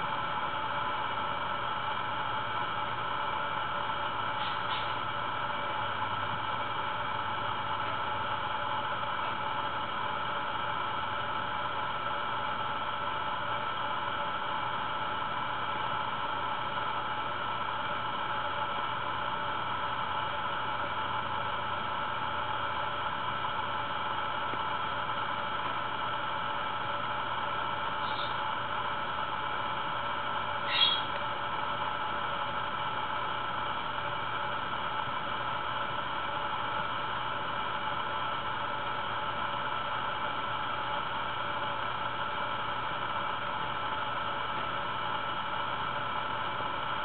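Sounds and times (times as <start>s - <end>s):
faint hum: 0.0s - 47.0s.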